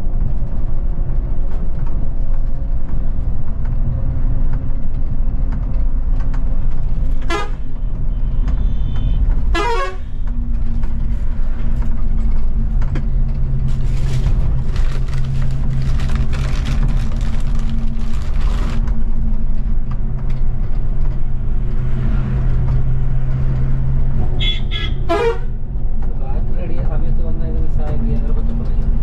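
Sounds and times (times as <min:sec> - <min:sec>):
vehicle horn toots: 0:07.3 - 0:07.6, 0:08.6 - 0:10.2, 0:24.4 - 0:25.5.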